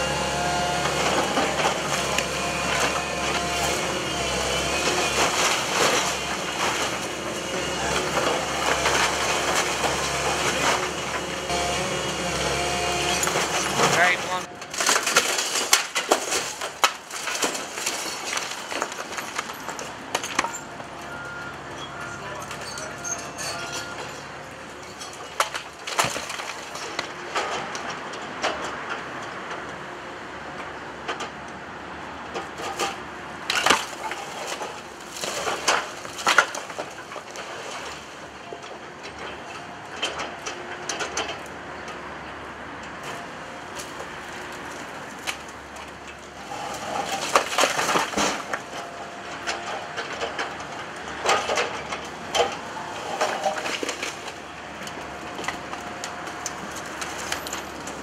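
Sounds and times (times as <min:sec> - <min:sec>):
timber splintering: 0:00.0 - 0:20.8, 0:23.9 - 0:28.0, 0:32.6 - 0:38.4, 0:43.0 - 0:58.0
brickwork cracking and crashing: 0:00.0 - 0:29.6, 0:32.4 - 0:41.4, 0:43.0 - 0:58.0
rubble falling: 0:13.1 - 0:20.8, 0:46.8 - 0:48.8.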